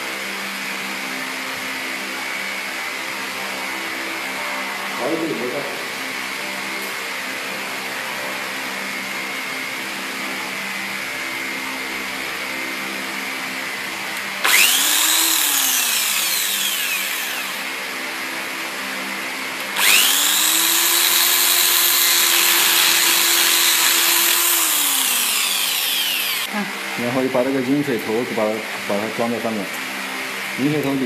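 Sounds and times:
electric drill boring plastic pipe: 13.4s - 26.5s.

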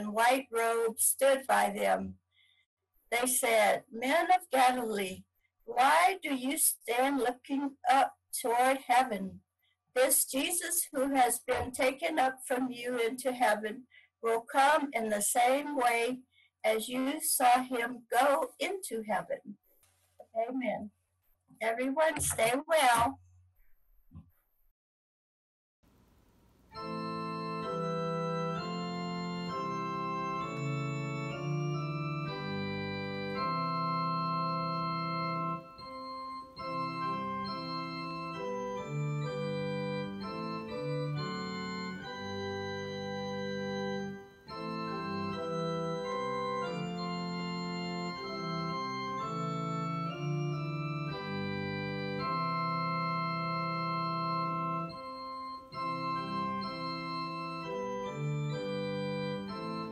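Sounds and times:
organ-like piano chords: 26.8s - 59.9s.

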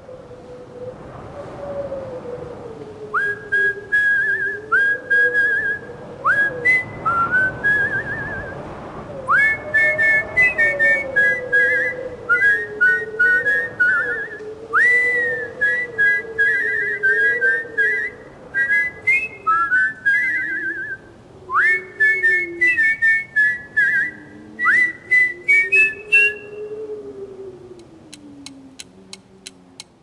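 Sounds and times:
high sliding whistled notes: 3.2s - 8.6s, 9.3s - 17.2s, 18.0s - 26.7s.

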